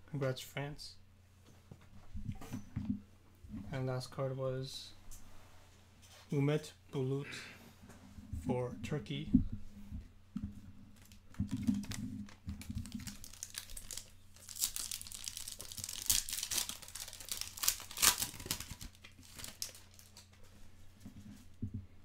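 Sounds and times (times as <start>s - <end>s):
foil wrapper crinkling and tearing: 11.0s - 20.3s.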